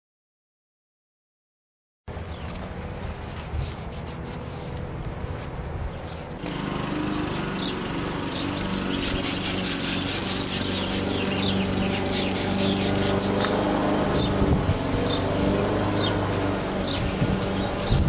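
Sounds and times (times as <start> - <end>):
motor drone: 2.1 - 18.0
rag rubbing rubber mat: 3.0 - 5.6, 8.9 - 14.3
spray bottle hissing: 8.8 - 13.8.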